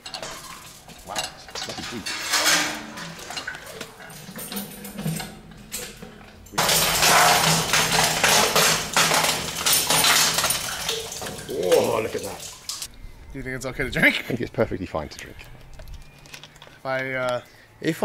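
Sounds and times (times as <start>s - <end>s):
chain and metal bucket clanking: 0.0s - 12.9s, 15.2s - 16.9s.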